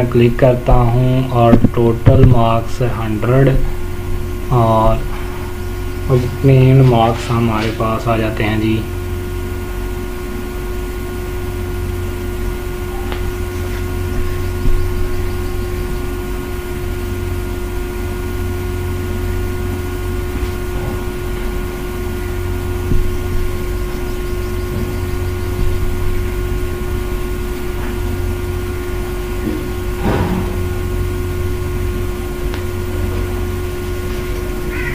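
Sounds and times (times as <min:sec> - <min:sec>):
constant mid-pitched tone: 0:00.0 - 0:34.9
low background hum: 0:00.0 - 0:34.9.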